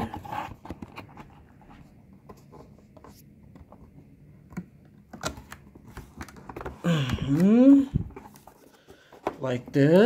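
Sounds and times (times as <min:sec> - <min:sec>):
cardboard scraping and rubbing: 0:00.0 - 0:03.3.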